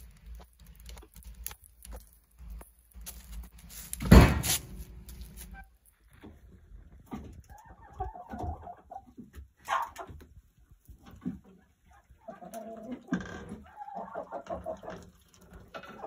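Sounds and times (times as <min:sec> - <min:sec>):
chickens clucking: 0:07.0 - 0:16.0.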